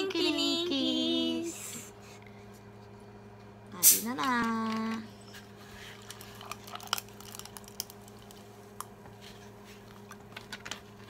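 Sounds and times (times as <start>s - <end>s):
faint steady hum: 0.0s - 11.0s
cola pouring over ice: 6.0s - 8.4s
ice and fizz crackling: 6.0s - 8.5s.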